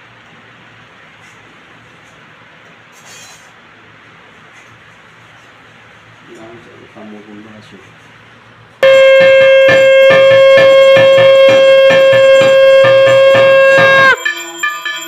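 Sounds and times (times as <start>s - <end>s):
conch shell blown: 8.8s - 14.3s
hand bell ringing: 8.8s - 15.0s.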